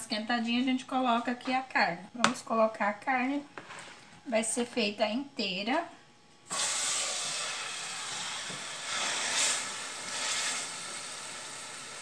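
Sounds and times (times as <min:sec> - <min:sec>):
meat sizzling in fat: 0:06.5 - 0:12.0.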